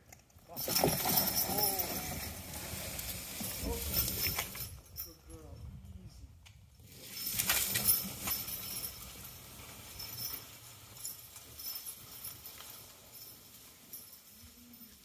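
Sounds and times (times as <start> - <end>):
harness clinking: 0.0 - 6.0, 6.7 - 15.0
log dragging through snow: 0.7 - 4.5.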